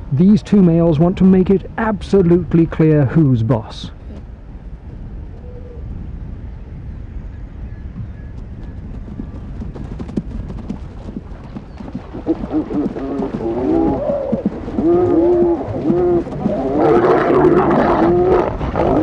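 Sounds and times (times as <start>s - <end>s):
low rumble: 3.8s - 19.0s
wavering animal cries: 12.3s - 19.0s.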